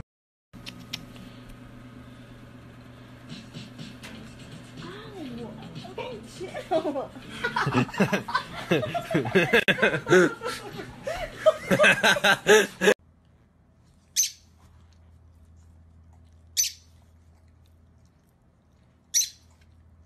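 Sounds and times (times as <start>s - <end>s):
faint low hum: 0.6s - 20.0s
boy laughing: 6.4s - 13.0s
bird chirping: 14.2s - 14.5s, 16.6s - 16.9s, 19.1s - 19.5s.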